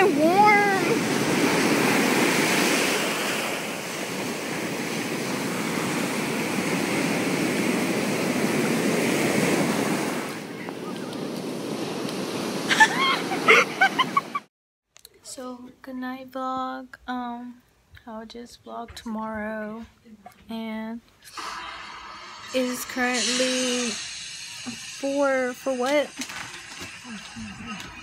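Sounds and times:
surf rushing and foaming: 0:00.0 - 0:14.5, 0:21.3 - 0:28.0.

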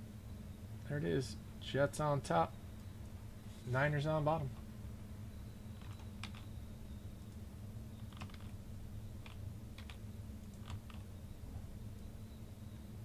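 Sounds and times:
steady low hum: 0:00.0 - 0:13.0
keyboard and mouse clicks: 0:05.8 - 0:06.5, 0:08.0 - 0:08.6, 0:09.2 - 0:11.1.

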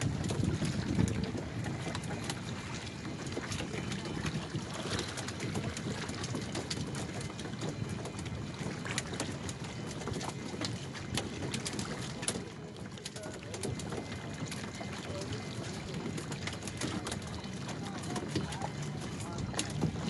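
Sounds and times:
wind on microphone: 0:00.0 - 0:12.3
small knocks and splashes: 0:00.0 - 0:20.0
water lapping around canoes: 0:00.0 - 0:20.0.

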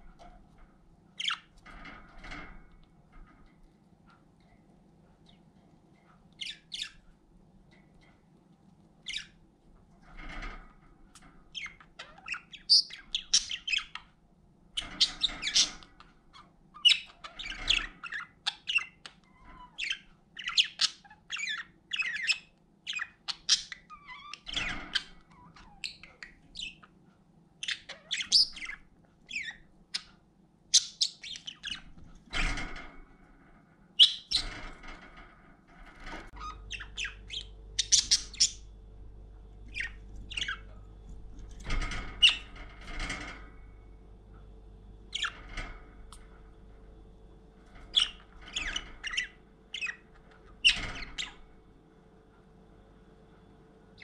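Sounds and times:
budgerigars chirping: 0:11.6 - 0:14.1, 0:14.8 - 0:16.1, 0:16.8 - 0:27.0, 0:27.6 - 0:30.1, 0:30.7 - 0:32.6, 0:34.0 - 0:34.6, 0:36.3 - 0:38.7, 0:39.7 - 0:40.8, 0:45.1 - 0:45.6, 0:47.9 - 0:51.4.

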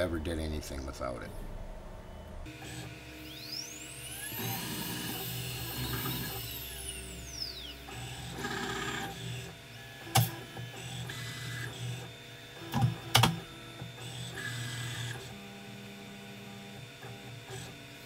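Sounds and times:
spindle whine: 0:00.0 - 0:09.5
stepper motors whining: 0:02.0 - 0:15.4.

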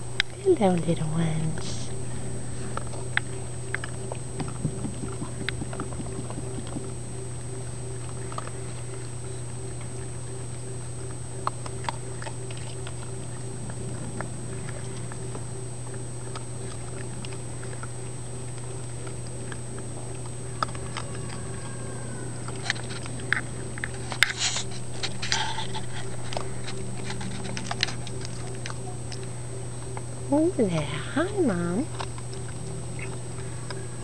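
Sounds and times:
steady hum: 0:00.0 - 0:34.0
clicks of paws and mouths: 0:11.1 - 0:21.6, 0:22.4 - 0:30.1.

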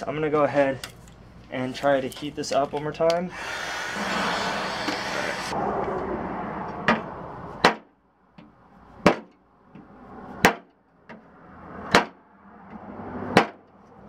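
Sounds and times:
heat gun blowing: 0:03.3 - 0:05.6.

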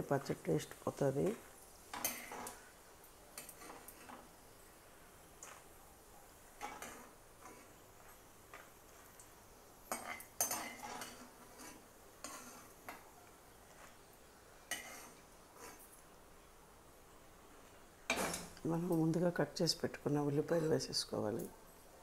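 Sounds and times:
metal ladle scraping a pan: 0:01.9 - 0:02.7, 0:03.4 - 0:04.3, 0:06.6 - 0:09.2, 0:09.9 - 0:13.0, 0:14.7 - 0:15.8.

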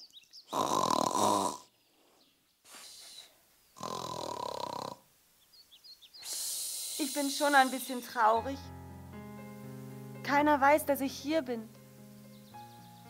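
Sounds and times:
person imitating cartoon snoring: 0:00.5 - 0:01.7, 0:03.8 - 0:05.0
soft breathy outbreath: 0:01.9 - 0:03.4, 0:06.2 - 0:07.8.

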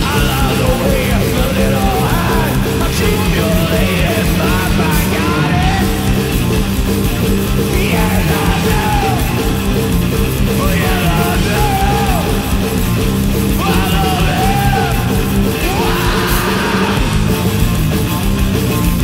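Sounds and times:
distorted electric guitar riffing: 0:00.0 - 0:19.0
drum kit: 0:00.0 - 0:19.0
person yelling vocals: 0:10.6 - 0:12.5, 0:13.6 - 0:17.2.

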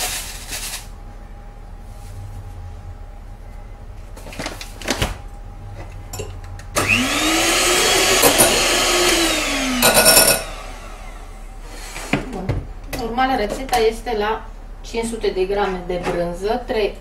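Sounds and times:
electric hand mixer motor: 0:06.8 - 0:11.8.

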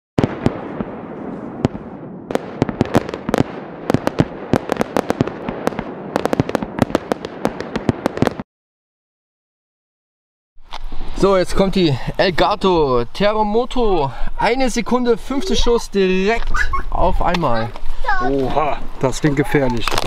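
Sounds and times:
firework bangs: 0:00.2 - 0:08.4
crackling hiss: 0:10.6 - 0:20.0.

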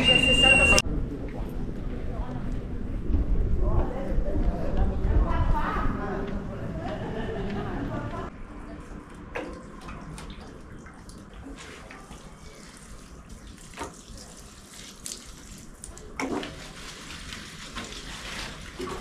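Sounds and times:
water pouring from watering can: 0:09.3 - 0:19.0
water splashing into plants: 0:09.3 - 0:19.0.

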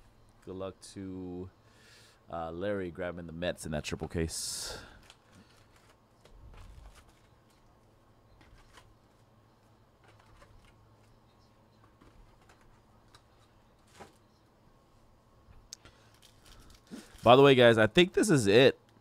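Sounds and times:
trading cards rustling: 0:04.9 - 0:07.7, 0:08.4 - 0:11.2, 0:11.8 - 0:14.2, 0:15.9 - 0:17.6.

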